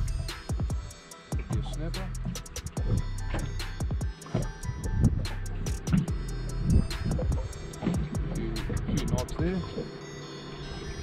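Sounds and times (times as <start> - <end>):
music with held tones and beat: 0.0 - 11.0.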